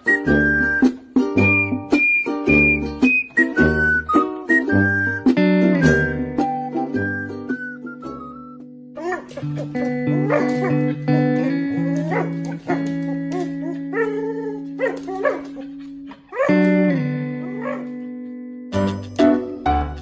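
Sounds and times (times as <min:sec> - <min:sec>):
background music plucked strings: 0:00.0 - 0:20.0
husky vocalizing: 0:09.0 - 0:16.7.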